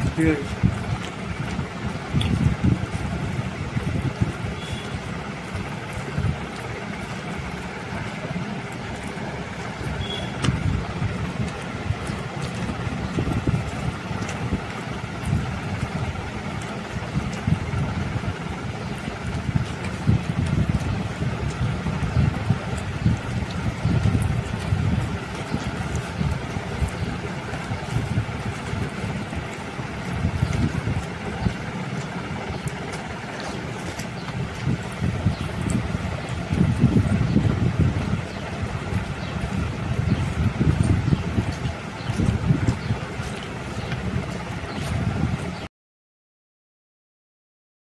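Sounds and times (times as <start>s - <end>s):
wind buffeting microphone: 0.0s - 45.7s.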